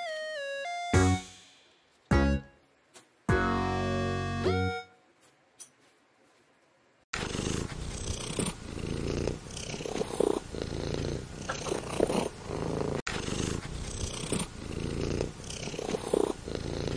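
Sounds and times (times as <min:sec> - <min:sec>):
cat purring: 0:07.2 - 0:16.9.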